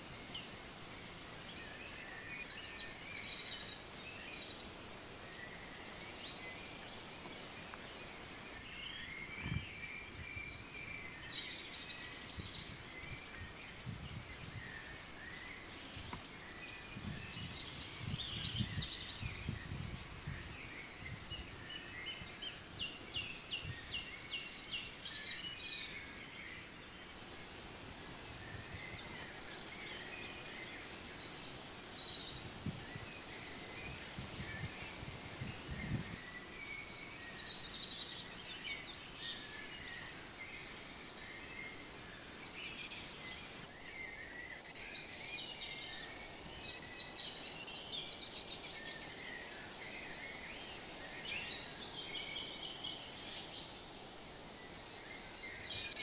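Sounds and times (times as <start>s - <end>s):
small birds singing: 0.0s - 56.0s.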